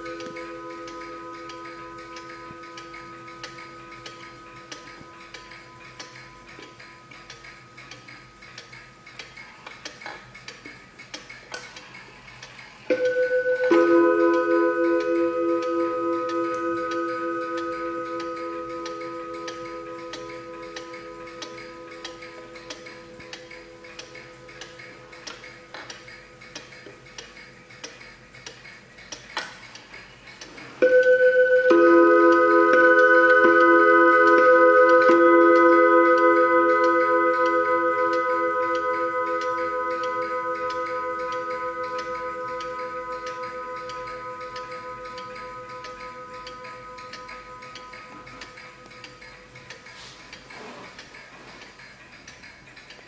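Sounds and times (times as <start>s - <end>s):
clock chime bars ringing: 0.0s - 7.1s, 12.9s - 25.7s, 30.8s - 50.1s
wall clock ticking: 0.0s - 53.0s.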